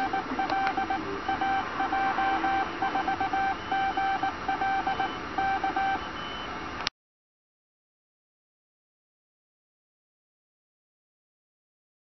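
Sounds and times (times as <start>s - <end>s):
morse code tone: 0.0s - 6.5s.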